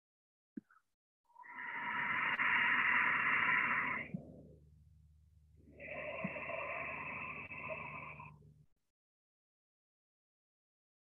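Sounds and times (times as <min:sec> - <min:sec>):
deep slow breaths: 0:01.4 - 0:08.7.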